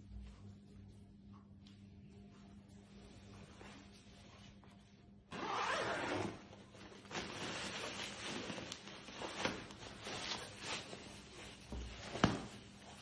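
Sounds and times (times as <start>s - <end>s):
fabric and plastic rustling: 3.6s - 13.0s.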